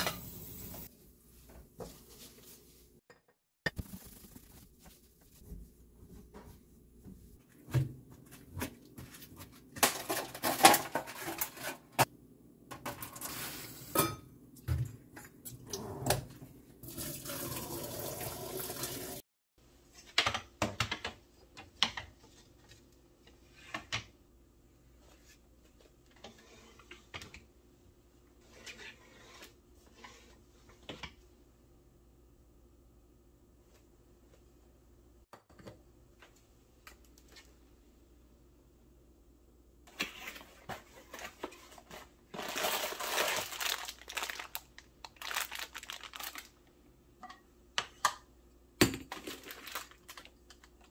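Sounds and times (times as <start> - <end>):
tap water running: 16.8 - 19.2.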